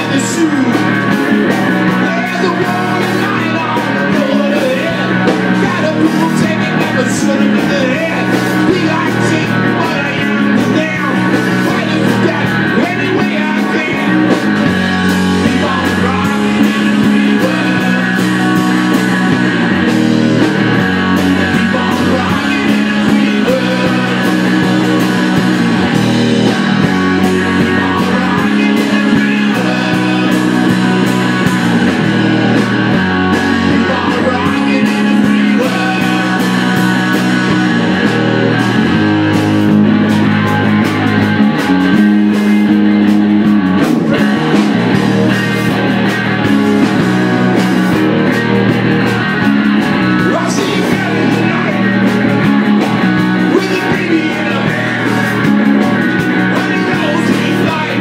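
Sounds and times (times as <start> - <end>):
man singing into a microphone: 0.0 - 19.6, 20.5 - 25.7, 26.4 - 31.7, 33.2 - 38.0, 50.1 - 58.0
drum kit: 0.0 - 58.0
electric guitars: 0.0 - 58.0.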